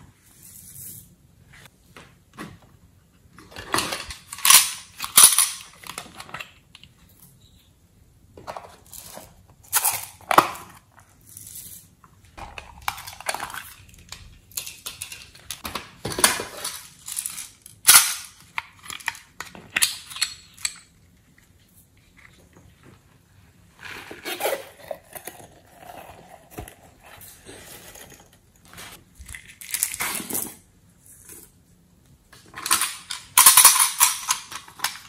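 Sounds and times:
small plastic pieces rattling: 12.4s - 20.8s.

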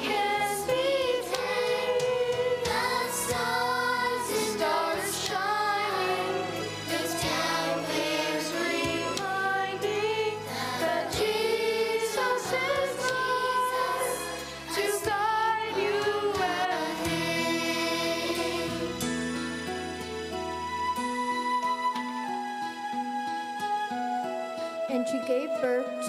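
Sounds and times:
youth choir singing: 0.0s - 19.1s
instrumental accompaniment: 0.0s - 26.0s.

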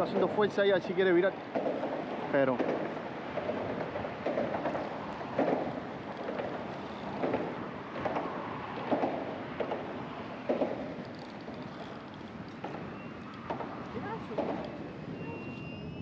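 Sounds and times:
wind: 0.0s - 16.0s.

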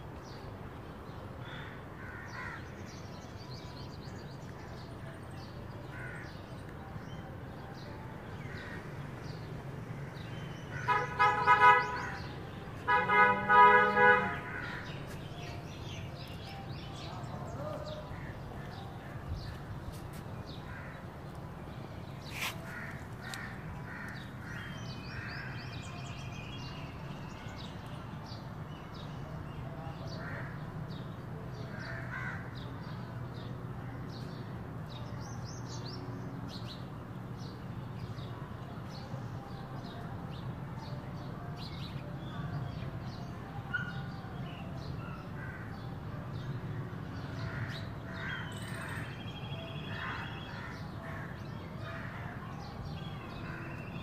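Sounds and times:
birds chirping: 0.2s - 33.1s.

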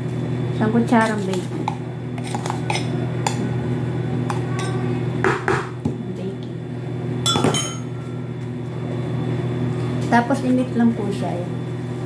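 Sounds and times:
steady low hum: 0.0s - 12.0s
metal spoon clinking on bowl: 7.3s - 7.9s.

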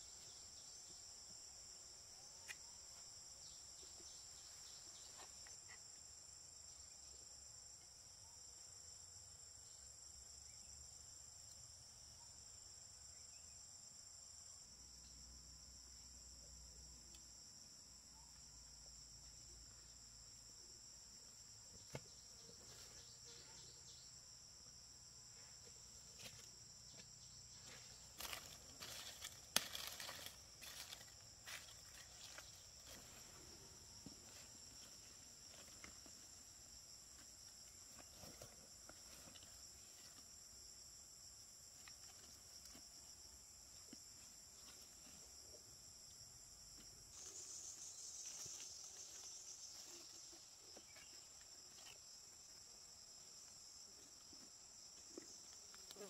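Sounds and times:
high-pitched insect chorus: 0.0s - 56.0s.

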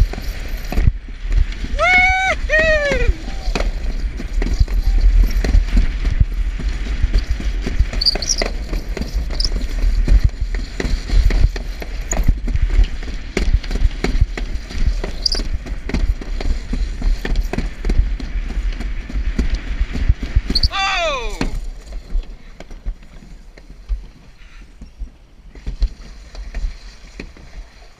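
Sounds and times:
sled rumbling down chute: 0.0s - 27.9s.

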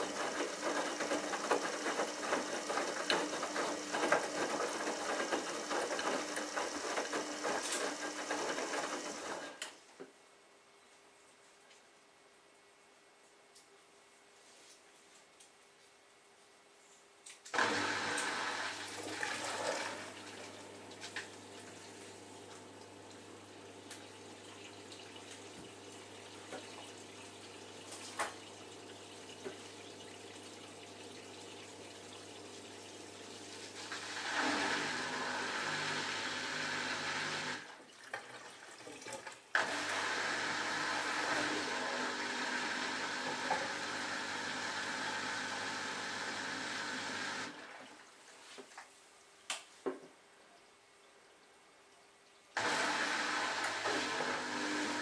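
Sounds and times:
water rushing through washing machine: 0.0s - 9.6s, 17.6s - 48.3s, 52.6s - 55.0s.

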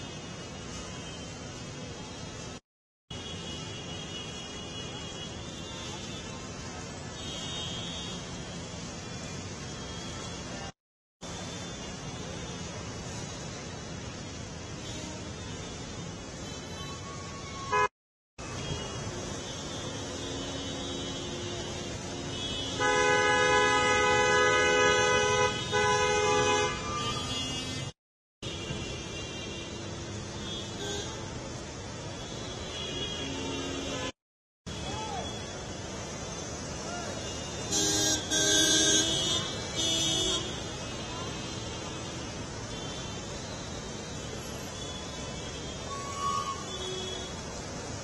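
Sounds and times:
street background: 0.0s - 48.0s
vehicle horn blasts: 16.7s - 17.9s, 22.3s - 27.9s, 37.5s - 40.6s.

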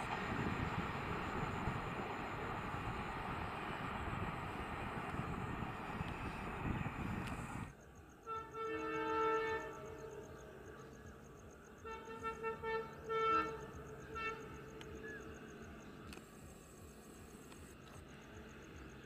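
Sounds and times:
locomotive air horn blasts: 8.2s - 10.3s, 11.8s - 14.8s.

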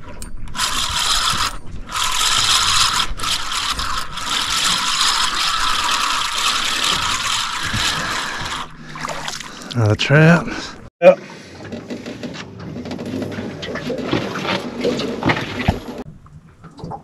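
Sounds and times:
fishing reel gears whirring: 0.5s - 9.2s.

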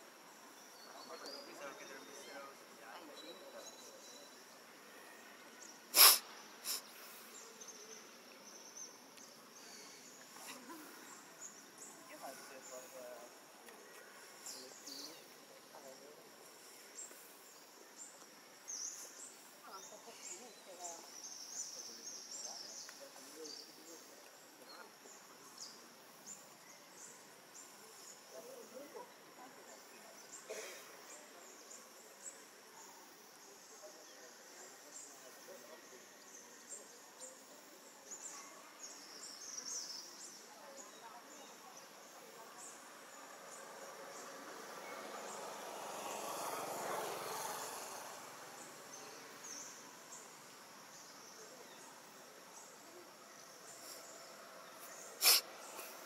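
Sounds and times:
sharp hissing burst: 5.9s - 7.3s, 55.2s - 56.0s.

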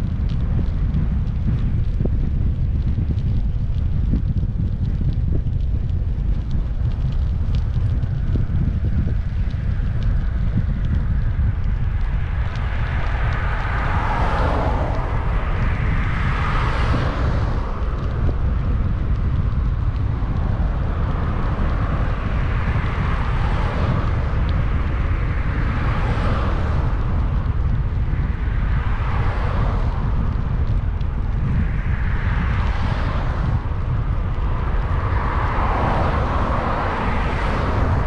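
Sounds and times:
wind buffeting microphone: 0.0s - 38.0s
cars passing: 8.9s - 38.0s.

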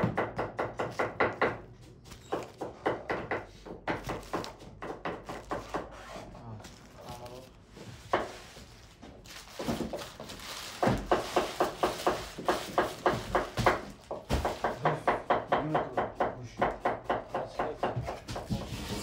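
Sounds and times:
chopping on a wooden board: 0.0s - 1.6s, 2.2s - 5.9s, 10.8s - 19.0s.

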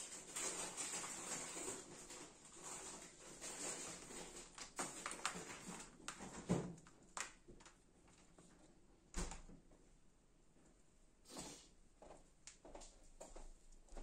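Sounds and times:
rustling wires: 0.0s - 8.8s.

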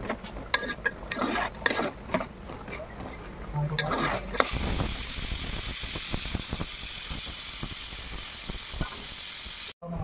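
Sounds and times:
curry simmering and bubbling: 0.1s - 4.4s.

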